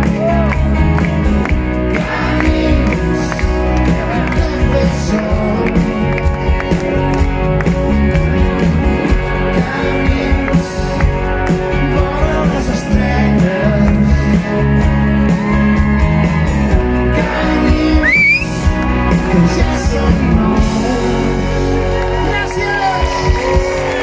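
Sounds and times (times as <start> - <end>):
live rock band with singer: 0.0 - 24.0.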